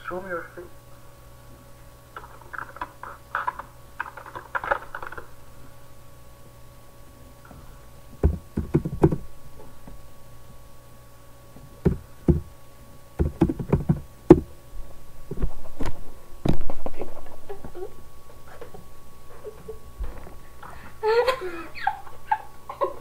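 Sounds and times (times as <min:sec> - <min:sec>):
heavier thump: 0:08.2 - 0:09.3, 0:11.8 - 0:12.5, 0:13.2 - 0:14.5.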